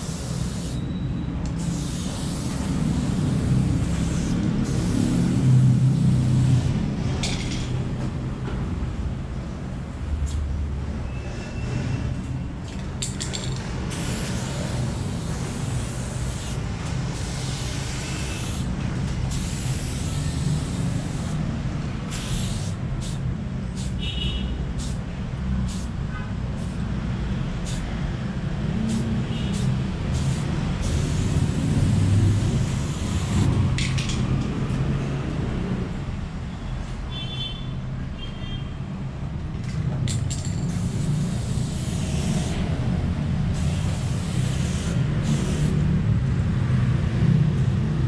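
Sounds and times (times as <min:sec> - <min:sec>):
spray paint can hissing: 0:00.0 - 0:00.8, 0:01.4 - 0:07.5, 0:12.9 - 0:25.0, 0:25.6 - 0:26.9, 0:27.6 - 0:27.9, 0:28.8 - 0:34.0, 0:40.1 - 0:42.7, 0:43.4 - 0:46.0.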